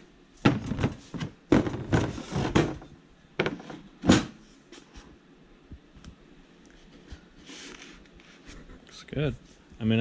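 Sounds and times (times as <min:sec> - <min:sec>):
metal objects knocking and scraping: 0:00.4 - 0:04.3.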